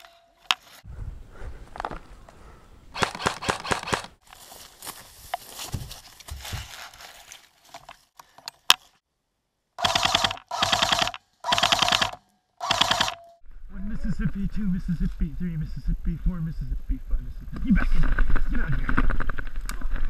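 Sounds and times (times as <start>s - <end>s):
airsoft gun full-auto bursts: 3.0s - 4.2s, 9.8s - 13.3s.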